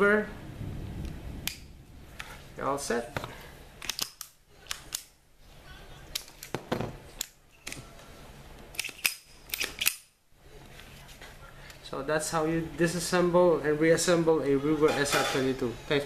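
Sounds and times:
pistol slide racking clicks: 3.8 - 5.1, 8.7 - 10.1.

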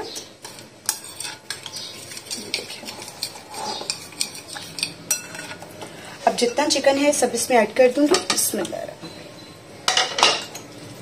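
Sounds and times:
metal spoon stirring in glass bowl: 0.4 - 5.6.

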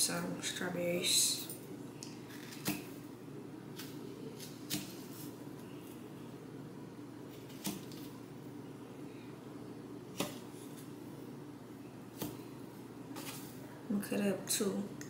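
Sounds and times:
faint steady hum: 0.0 - 15.0
knife slicing strawberries: 2.3 - 3.0, 3.7 - 6.0, 7.3 - 8.2, 10.1 - 10.9, 12.1 - 12.5.

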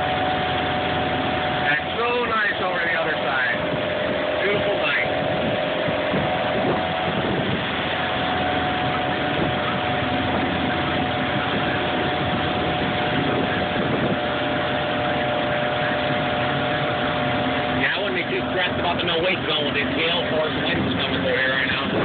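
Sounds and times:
boat engine droning: 0.0 - 22.0
choppy water: 0.0 - 22.0
wind rushing: 3.3 - 17.8.

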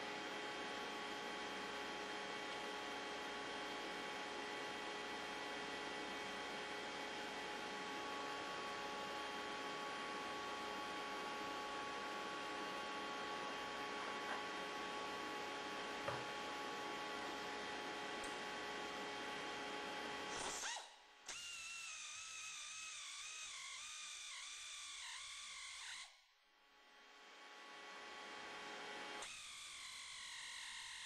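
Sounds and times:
steady electrical hum: 0.0 - 21.2.

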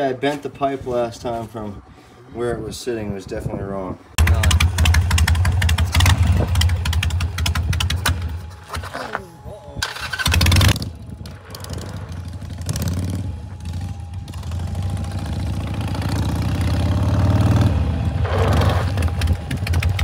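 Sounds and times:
motorcycle engine revving: 4.2 - 8.5, 9.8 - 20.0.

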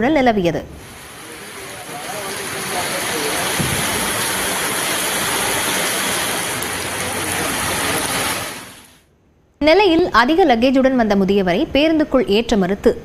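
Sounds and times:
heavy rain pouring: 0.8 - 9.0.

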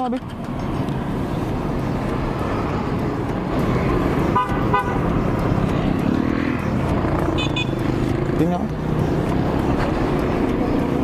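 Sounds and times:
street traffic rumble: 0.0 - 11.0
vehicle horn toots: 4.3 - 5.0, 7.4 - 7.8.

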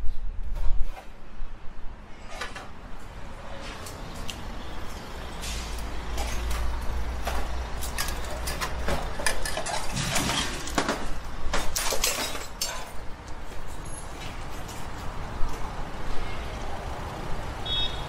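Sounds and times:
street traffic rumble: 0.0 - 18.0
metal scaffolding clanking: 6.2 - 13.0.

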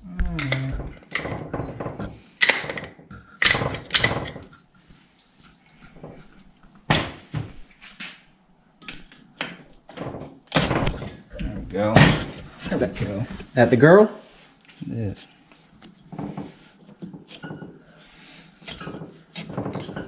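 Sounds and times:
metal tools knocking and clunking: 0.4 - 4.5.

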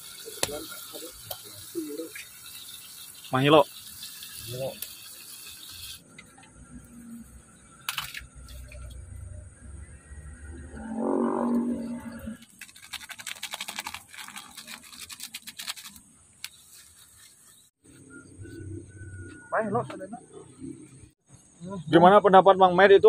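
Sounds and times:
plastic sachet crinkling: 12.4 - 17.7.

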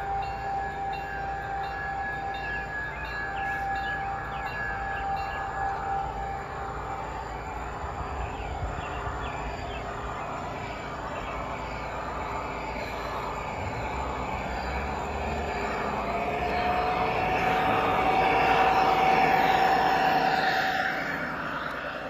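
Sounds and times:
steady high tone: 0.0 - 22.0.

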